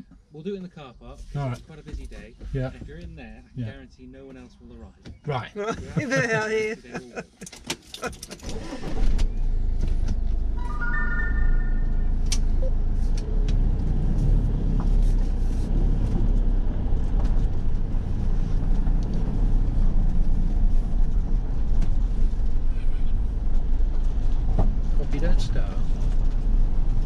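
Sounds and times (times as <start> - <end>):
electronic chime: 10.6 - 12.7
motorhome engine running: 12.0 - 27.0.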